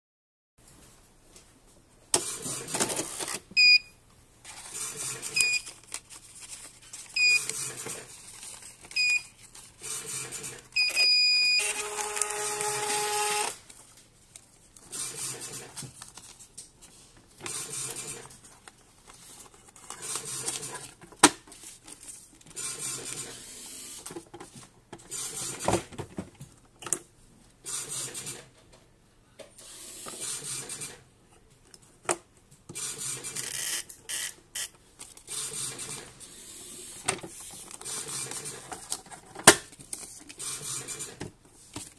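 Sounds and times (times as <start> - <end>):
printer beeps: 3.6 - 3.9, 5.2 - 5.7, 7.2 - 7.8, 9.0 - 9.3, 10.1 - 13.5
paper rustling: 4.4 - 9.9, 13.6 - 23.2, 37.3 - 40.4
printer mechanism buzzing: 9.8 - 13.6.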